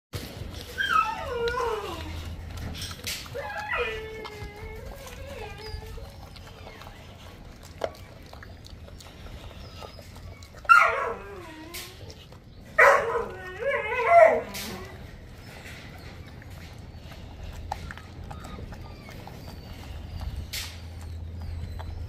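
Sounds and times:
dog whining: 0.2s - 22.0s
wet chewing and tearing clicks: 0.2s - 22.0s.

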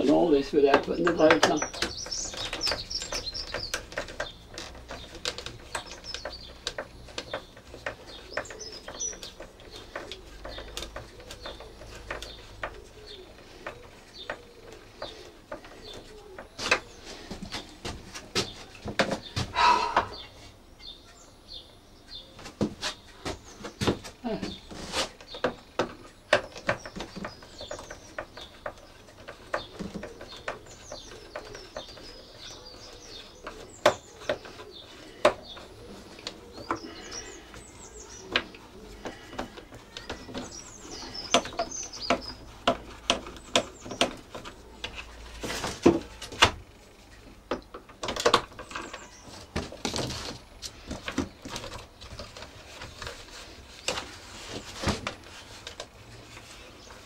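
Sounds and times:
birds chirping: 0.0s - 57.0s
plastic clicks and knocks: 0.7s - 17.6s, 38.1s - 53.2s.

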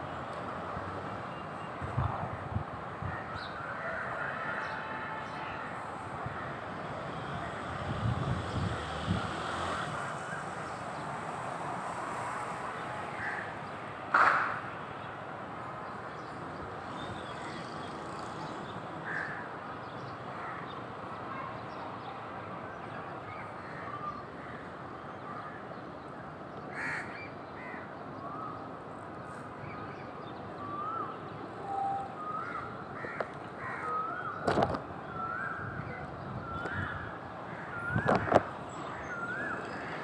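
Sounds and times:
crows cawing: 26.7s - 27.8s, 32.5s - 34.0s.

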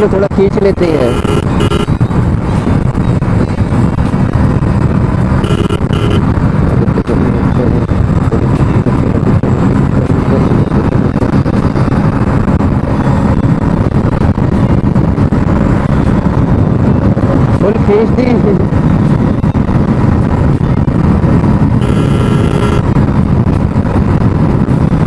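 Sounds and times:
motorcycle engine at full throttle: 0.0s - 25.0s
road noise: 0.0s - 25.0s
short high beeps: 1.0s - 1.9s, 5.4s - 6.2s, 21.8s - 22.8s.

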